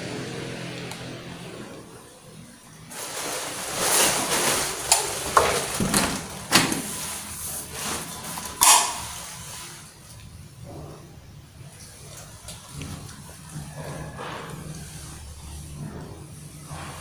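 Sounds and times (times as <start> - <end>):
rustling: 2.8 - 10.2.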